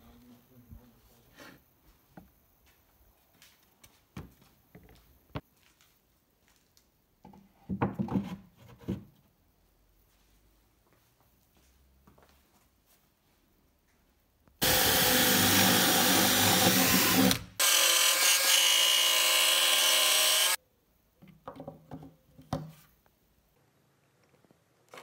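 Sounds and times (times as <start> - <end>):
electric jigsaw cutting plywood: 14.6 - 20.6.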